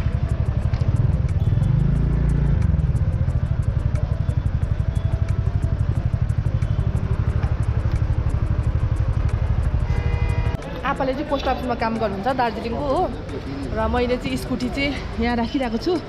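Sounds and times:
scooter engine running: 0.0 - 10.5.

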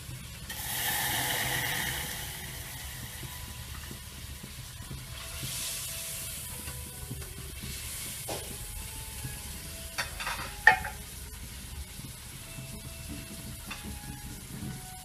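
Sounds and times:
liquid pouring into metal pot: 0.5 - 4.0.

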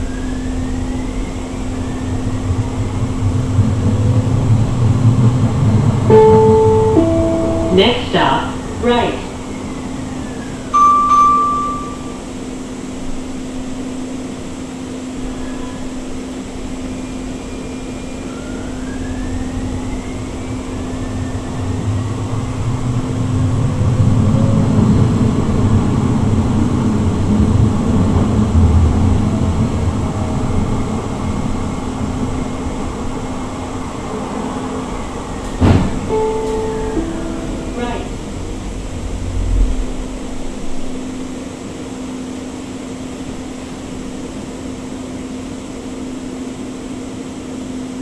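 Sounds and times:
rising inverter whine: 0.0 - 48.0
tram traction hum: 0.0 - 48.0
wheel-on-rail rumble: 0.0 - 48.0
short tone: 6.1 - 8.4, 10.7 - 12.2, 36.0 - 38.2.

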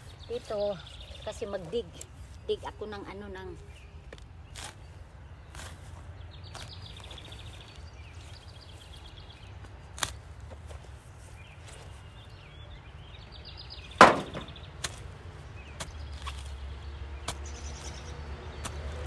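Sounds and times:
shovel chopping into soil: 9.9 - 10.2, 14.0 - 15.1, 15.8 - 16.6.

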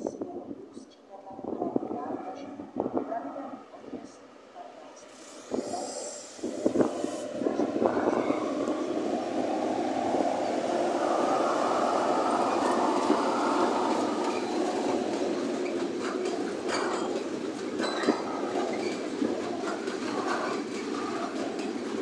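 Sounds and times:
freight wagons rumbling on rails: 0.0 - 22.0
diesel locomotive passing: 2.0 - 22.0.

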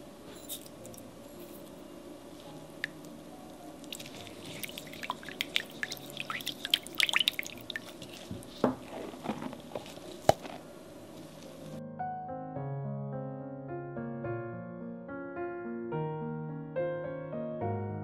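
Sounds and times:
wet clicks of sticky food: 3.8 - 8.0.

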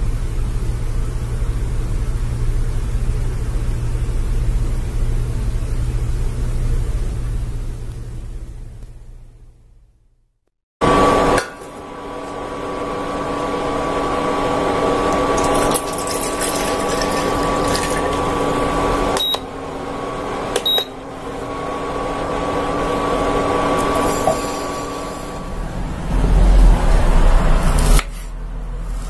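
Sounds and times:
water pouring into metal pot: 15.2 - 18.9.

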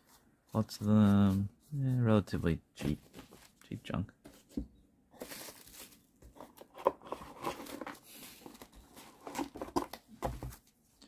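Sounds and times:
cards rustling and clicking: 5.2 - 10.7.

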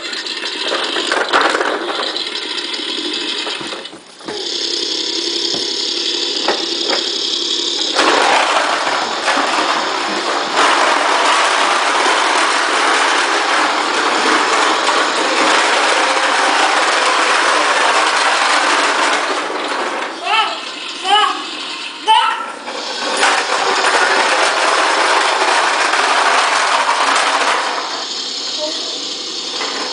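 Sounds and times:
toy lawn mower clattering: 0.0 - 21.2, 22.5 - 29.9.

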